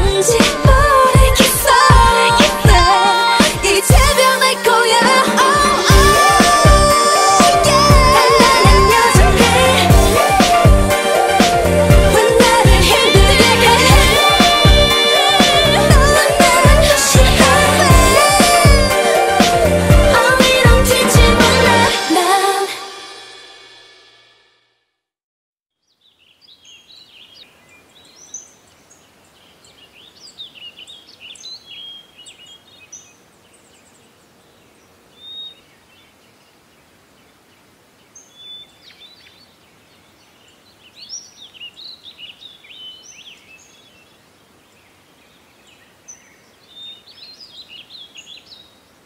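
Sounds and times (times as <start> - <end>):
birds chirping: 25.8 - 48.9
steady soft hiss: 26.0 - 49.0.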